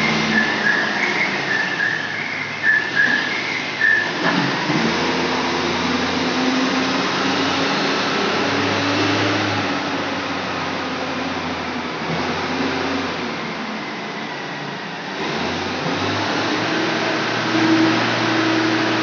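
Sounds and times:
high whistling tone: 0:00.0 - 0:04.2
forklift engine running: 0:00.0 - 0:19.0.

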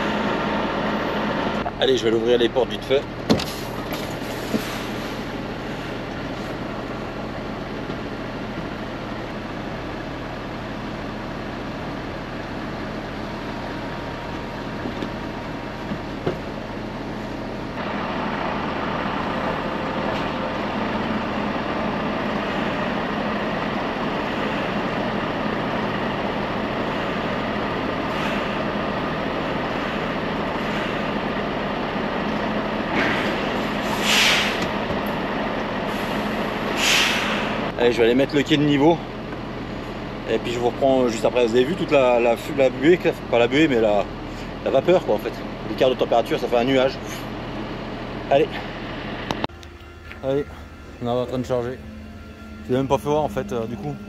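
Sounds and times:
diesel engine drone: 0:00.0 - 0:54.0
short hiss: 0:33.8 - 0:34.6, 0:36.8 - 0:37.5.

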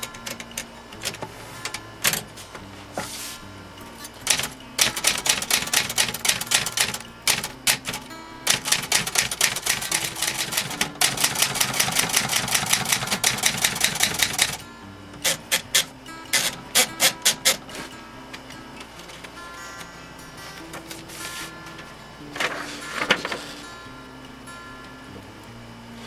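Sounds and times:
typewriter typebar strikes: 0:04.2 - 0:14.6, 0:15.2 - 0:17.8.

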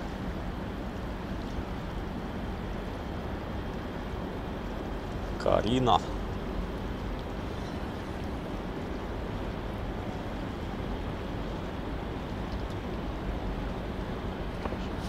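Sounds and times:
outdoor low rumble: 0:00.0 - 0:15.0.

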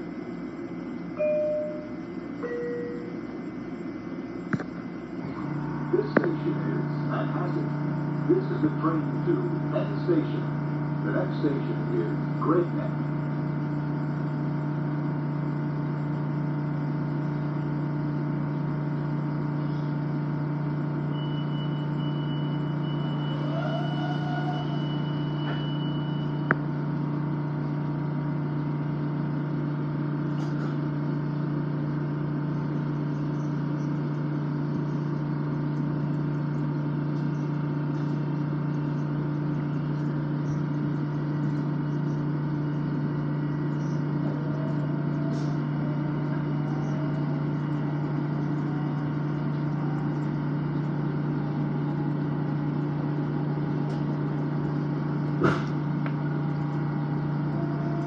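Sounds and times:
train interior drone: 0:00.0 - 0:58.0
faint high tone: 0:01.2 - 0:03.2.

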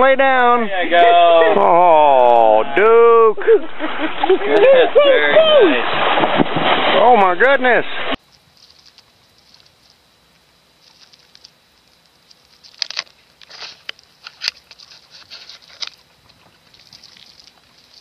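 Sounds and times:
light scratching and tapping: 0:08.2 - 0:18.0
sharp clicks and scrapes: 0:10.8 - 0:18.0.

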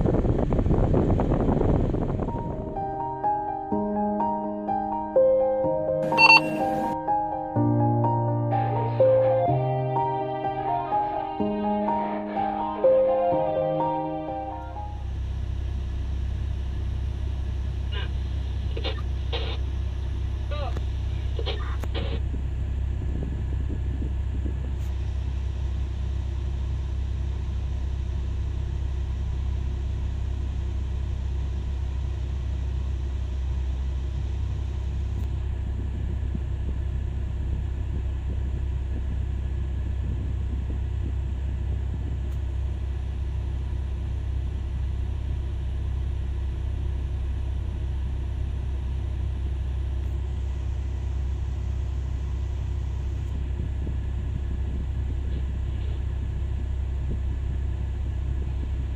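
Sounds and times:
faint steady tones: 0:06.0 - 0:07.0
mining shovel deep rumble: 0:47.9 - 0:58.9.

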